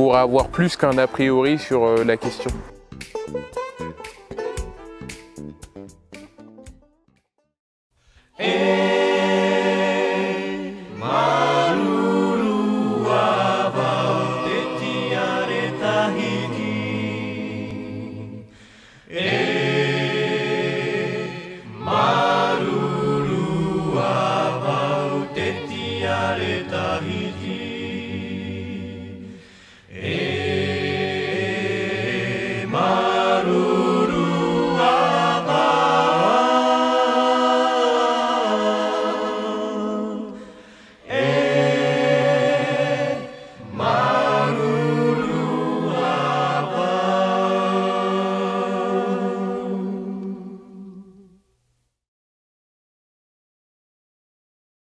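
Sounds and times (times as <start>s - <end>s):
choir singing unaccompanied: 8.3s - 18.5s, 19.1s - 51.4s.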